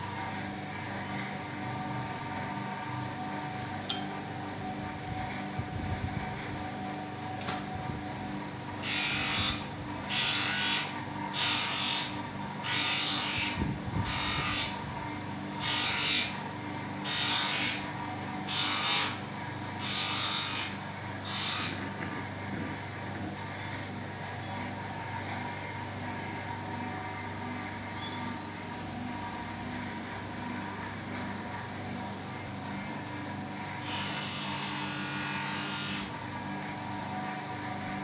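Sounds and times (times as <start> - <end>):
steady motor hum: 0.0 - 38.0.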